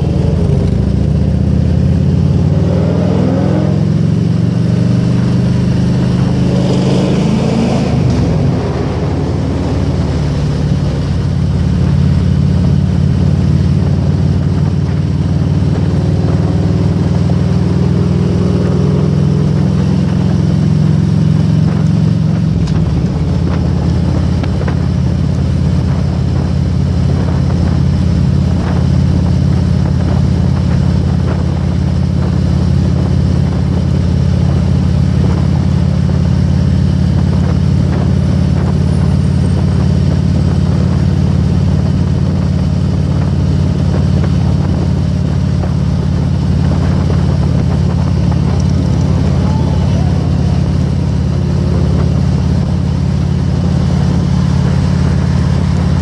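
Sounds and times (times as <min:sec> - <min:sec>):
motorcycle engine cruising: 0:00.0 - 0:56.0
wind noise: 0:00.0 - 0:56.0.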